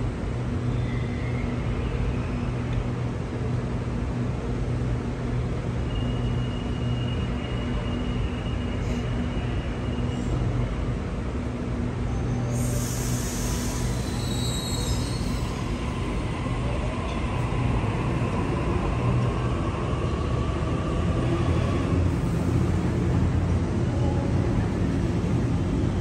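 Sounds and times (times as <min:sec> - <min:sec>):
train rumble: 0:00.0 - 0:26.0
electric train whine: 0:05.5 - 0:26.0
train air hiss: 0:08.7 - 0:10.6, 0:12.4 - 0:16.3.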